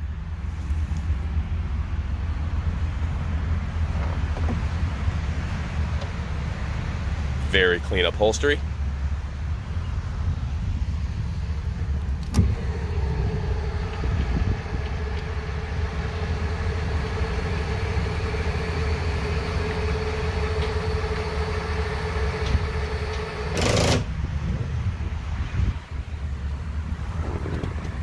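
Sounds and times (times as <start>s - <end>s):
actuator click: 12.2s - 24.1s
electric motor whine: 12.2s - 24.1s.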